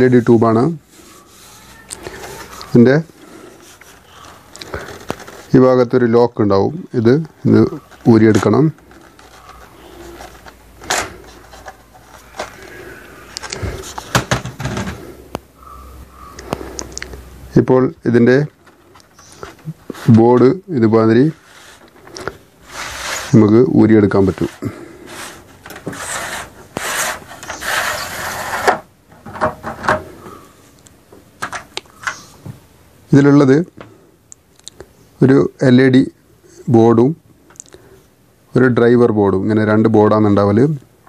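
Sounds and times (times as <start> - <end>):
plastic end cap scraping: 24.2 - 28.9.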